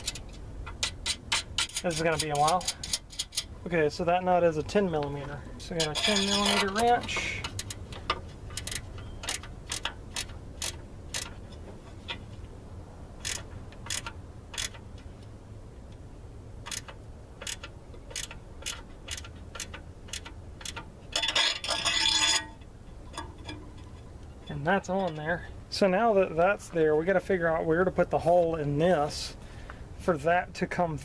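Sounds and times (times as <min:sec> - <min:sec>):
wrench clicking on nut: 0:00.0 - 0:03.5, 0:05.8 - 0:11.4, 0:13.2 - 0:14.8, 0:16.6 - 0:22.4
metal clatter: 0:05.6 - 0:12.3, 0:16.7 - 0:25.5.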